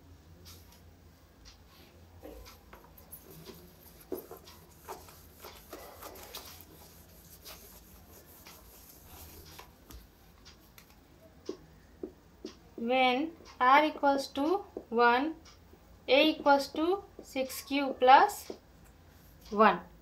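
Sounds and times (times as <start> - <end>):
cloth rubbing whiteboard: 3.0 - 9.9.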